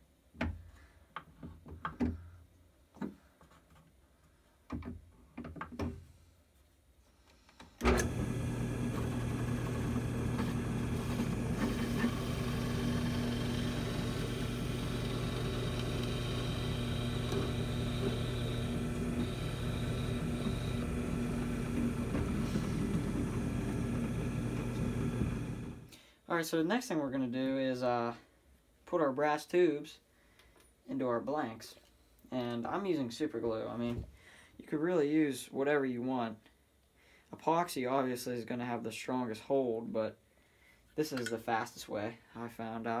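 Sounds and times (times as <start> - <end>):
drill press motor humming: 7.8 - 25.9
drill bit boring through wood: 7.9 - 25.9.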